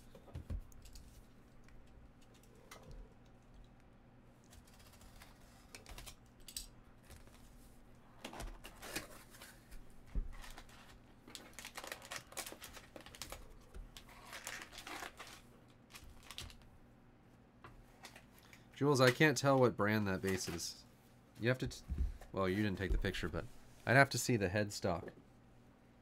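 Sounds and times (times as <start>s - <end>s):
foil wrapper crinkling: 10.4s - 16.6s.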